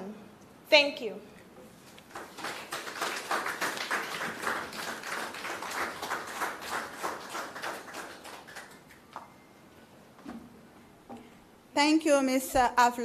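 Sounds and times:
audience applauding: 2.1s - 9.1s.

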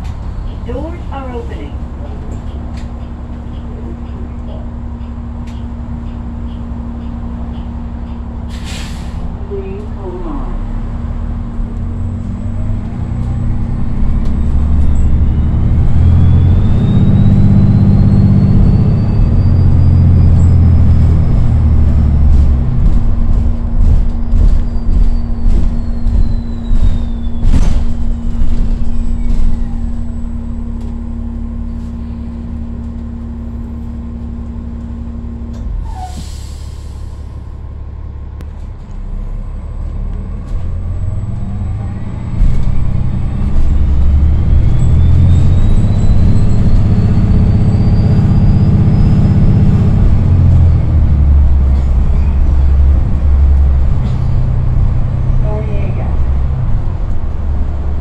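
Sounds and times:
bus diesel engine rumbling: 0.0s - 58.0s
air brake hiss: 8.5s - 9.3s, 35.8s - 37.3s.

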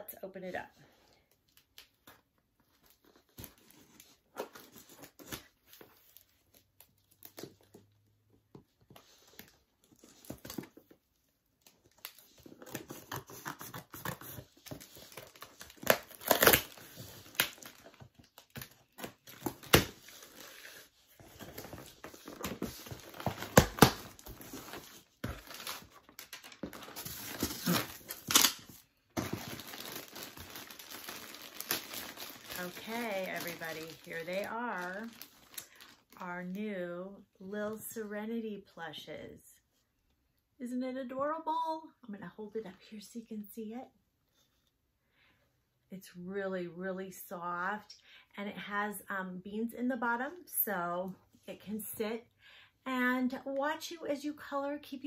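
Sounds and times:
packaging rustling and tearing: 11.6s - 36.2s.

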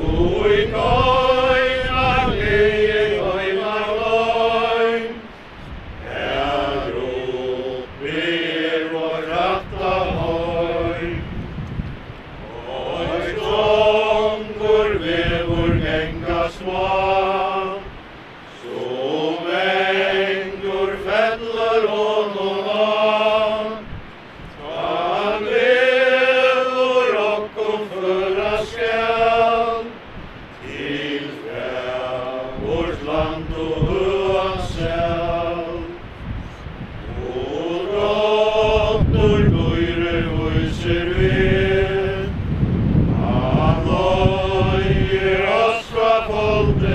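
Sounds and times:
mourners singing a hymn: 0.0s - 46.9s
wind rumble on microphone: 0.0s - 46.9s.

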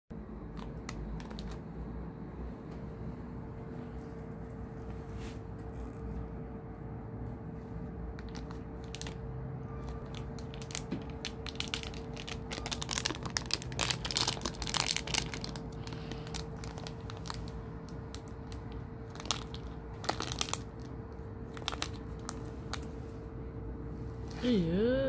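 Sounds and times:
plastic packet crinkling: 0.5s - 1.6s, 8.2s - 22.9s.

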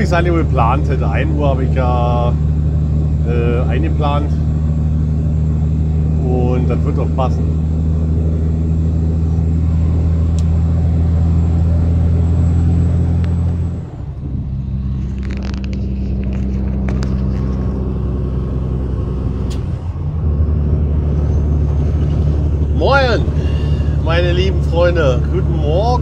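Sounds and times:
truck diesel engine drone: 0.0s - 26.0s
light clicks and rustles: 15.0s - 17.8s.

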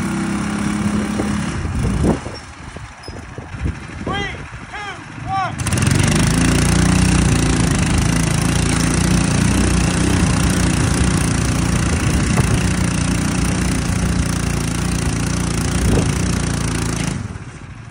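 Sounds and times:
small kart engines running: 0.0s - 17.9s.

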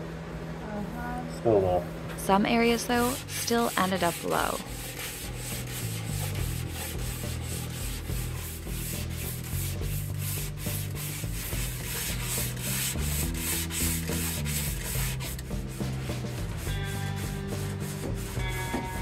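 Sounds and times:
sandpaper rasping: 2.8s - 19.0s.

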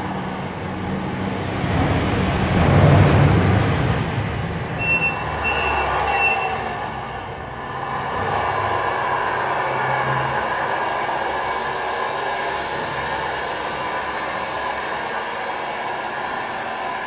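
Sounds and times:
simulated diesel truck engine: 0.0s - 17.0s
short high beeps: 4.8s - 6.6s.

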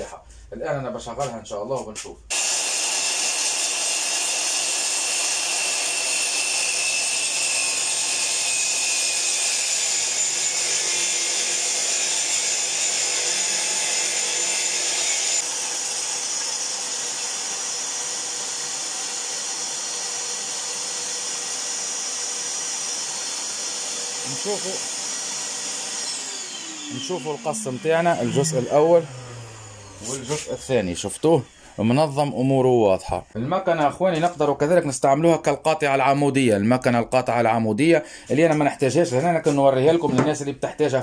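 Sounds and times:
circular saw cutting board: 2.0s - 31.5s
shop vacuum running: 2.3s - 31.5s.

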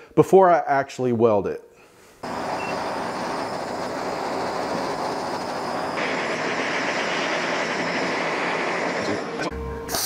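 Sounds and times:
propane torch hissing: 2.2s - 10.0s.

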